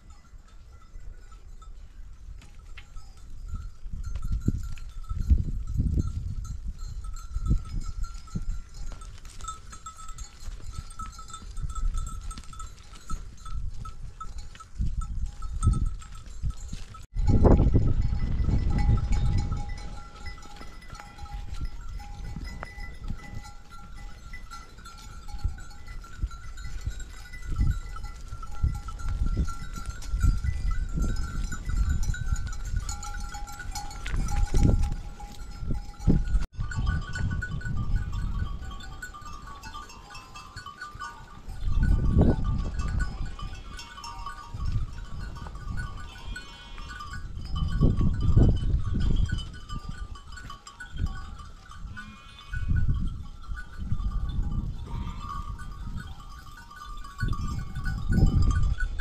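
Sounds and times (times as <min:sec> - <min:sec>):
sheep bleating: 0:43.0 - 0:44.3, 0:46.0 - 0:47.1, 0:51.9 - 0:52.8, 0:54.8 - 0:55.6.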